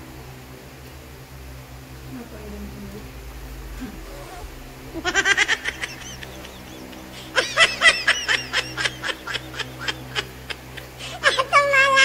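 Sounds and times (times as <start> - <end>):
high-pitched giggles: 4.0 - 12.0.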